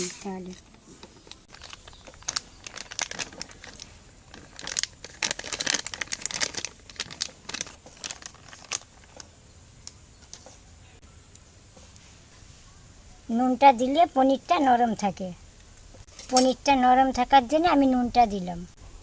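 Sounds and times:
plastic packet crinkling: 1.2 - 9.2.

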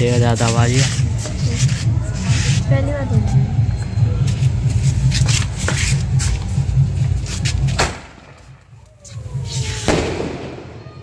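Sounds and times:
firework low rumble: 0.0 - 11.0
firework pops: 7.8 - 8.5, 9.1 - 10.8.

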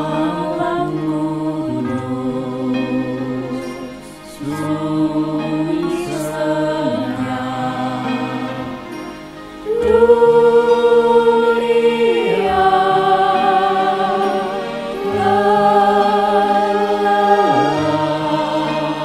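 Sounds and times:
mixed choir singing: 0.0 - 19.0.

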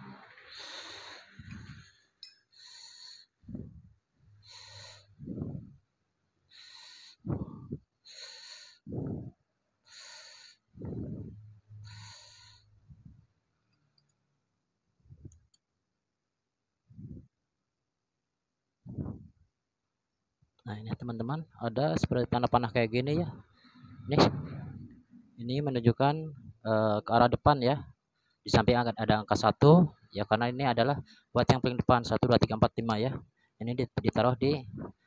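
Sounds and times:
person breathing heavily: 0.2 - 5.9, 6.5 - 13.2.

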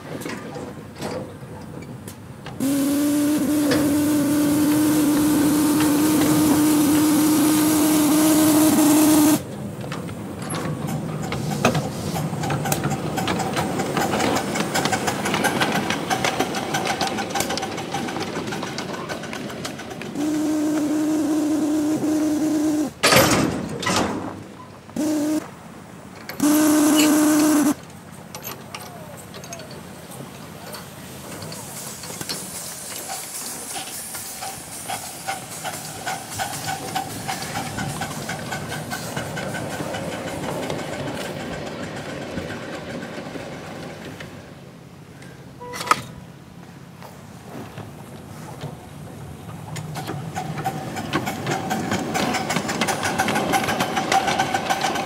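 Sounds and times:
train clattering and hissing: 0.0 - 55.0
steam locomotive whistle blasts: 2.6 - 9.4, 20.2 - 23.0, 25.0 - 25.5, 26.4 - 27.8.

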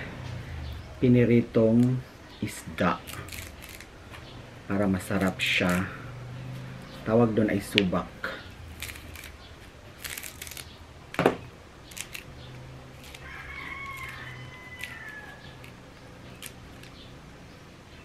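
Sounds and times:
leaves rustling and snapping: 3.0 - 4.2, 8.7 - 17.0.

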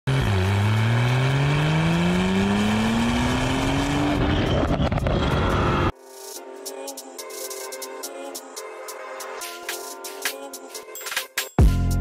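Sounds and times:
sports car engine accelerating: 0.1 - 5.9.

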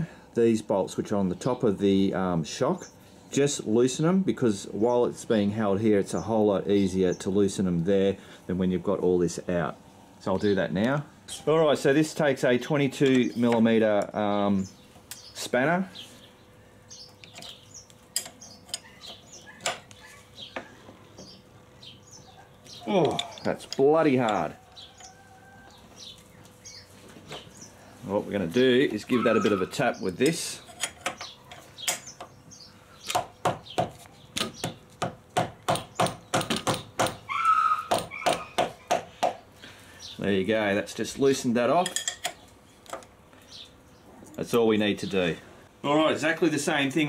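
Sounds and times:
small birds chirping faintly: 4.6 - 47.0
spanner clicking on bolts: 17.2 - 20.0, 30.2 - 32.3.

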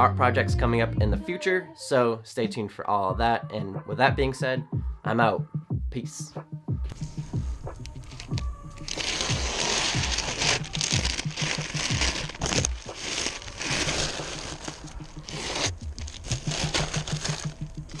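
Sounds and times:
plastic bag rustling: 6.9 - 18.0
paper crinkling: 7.7 - 18.0.

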